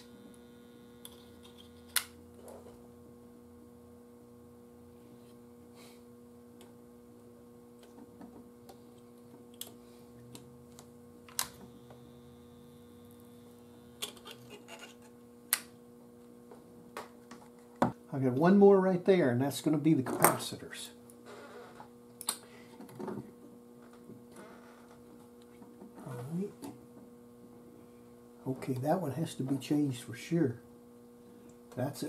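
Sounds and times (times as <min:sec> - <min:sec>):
soldering gun humming: 0:00.0 - 0:18.0.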